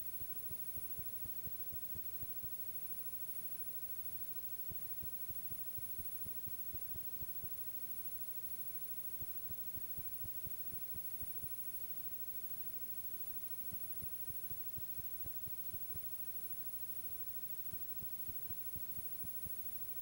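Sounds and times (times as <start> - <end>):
low hum and hiss: 0.0 - 20.0
soft low ticks: 4.4 - 7.6, 9.1 - 11.6, 13.5 - 16.2, 17.7 - 20.0.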